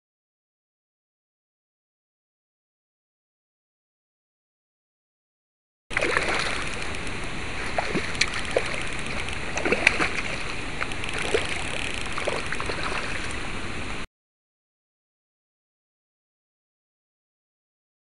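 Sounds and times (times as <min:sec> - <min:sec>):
water splashing and sloshing: 0:05.9 - 0:14.1.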